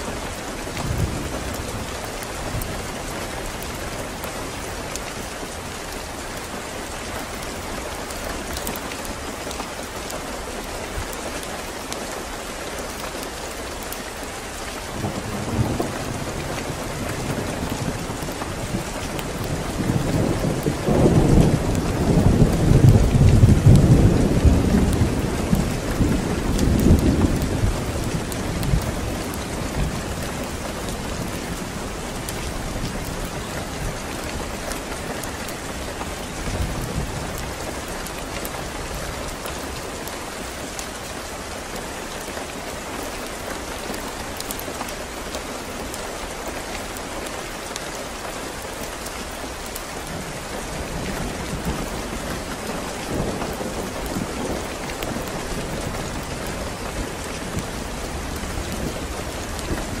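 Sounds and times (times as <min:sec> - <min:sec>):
heavy rain falling: 0:00.0 - 1:00.0
low rolling thunder: 0:15.0 - 0:37.9.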